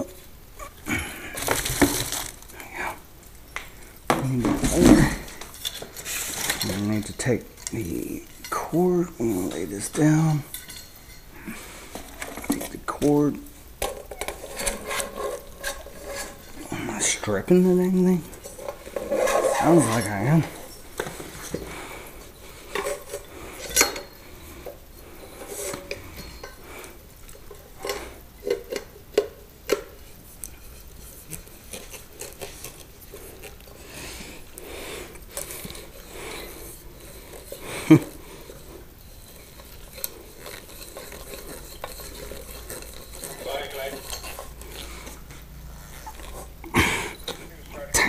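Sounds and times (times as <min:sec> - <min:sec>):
metal parts clinking and scraping: 0:01.3 - 0:02.5, 0:04.1 - 0:24.3, 0:25.2 - 0:26.6, 0:35.1 - 0:45.2
metal threads grinding: 0:04.1 - 0:28.9, 0:30.6 - 0:48.0.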